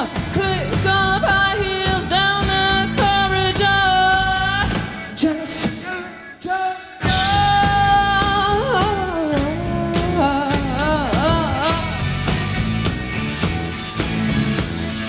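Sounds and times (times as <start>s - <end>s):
woman singing: 0.0s - 6.0s, 7.0s - 12.1s
live rock band: 0.0s - 15.0s.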